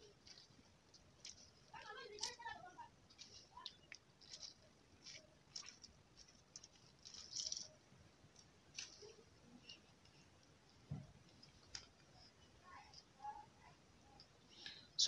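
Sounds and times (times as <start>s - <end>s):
lemon squishing by hand: 0.0s - 13.1s
soft knock: 10.9s - 11.1s.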